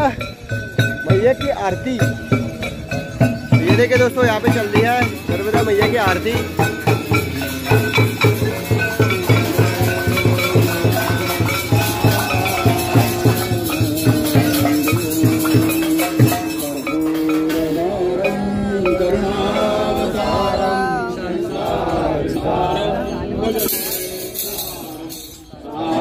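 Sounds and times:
large drum beaten rapidly: 0.0s - 17.8s
bells and cymbals clashing: 0.0s - 26.0s
voices singing a chant: 1.1s - 26.0s.

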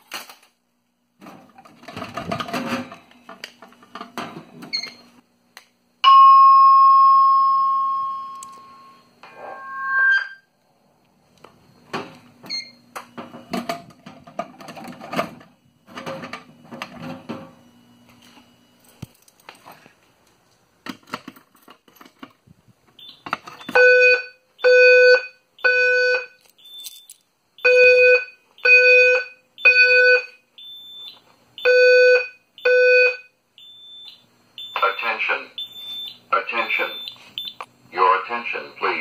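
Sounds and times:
fire alarm evacuation tone: 6.0s - 10.6s, 14.6s - 19.0s, 23.0s - 39.0s.

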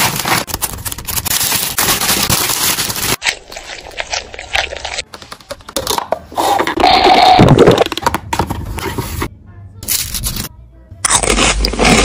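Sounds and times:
paper wrapper crinkling: 0.0s - 5.1s.

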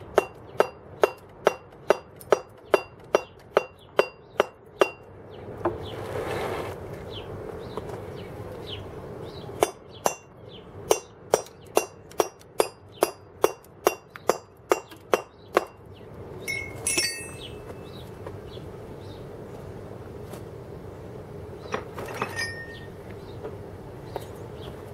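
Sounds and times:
mallet striking chisel on stone: 10.9s - 15.8s
metallic clink: 16.5s - 17.8s, 22.1s - 22.9s.

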